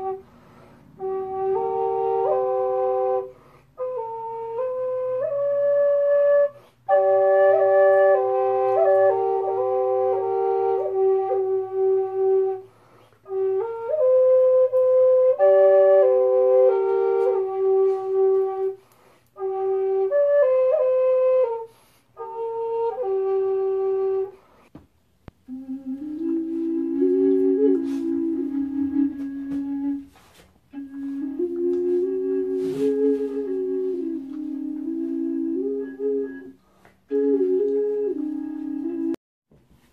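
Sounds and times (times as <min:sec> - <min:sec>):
wooden double flute melody: 0:00.0 - 0:39.2.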